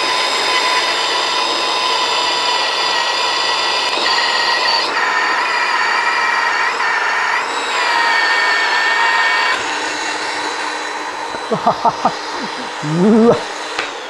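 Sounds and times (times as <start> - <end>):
magnetic drill whining through steel: 0.0 - 14.0.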